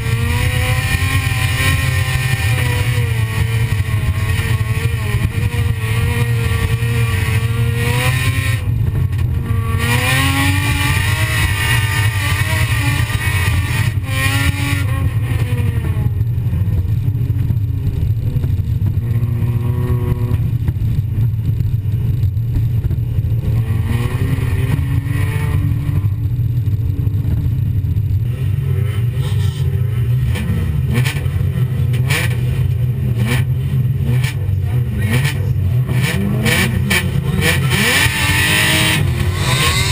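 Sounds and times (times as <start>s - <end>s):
car engine revving: 0.0s - 39.9s
low drone: 37.2s - 39.9s.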